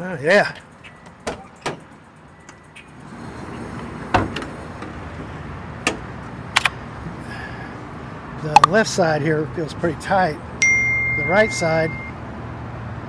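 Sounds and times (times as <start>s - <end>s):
van door latch clack: 1.2s - 1.9s, 5.8s - 6.1s.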